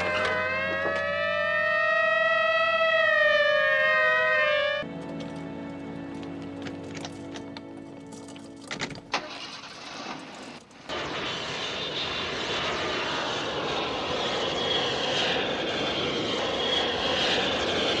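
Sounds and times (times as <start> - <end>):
jet engine noise with whine: 0.0 - 4.9, 9.9 - 18.0.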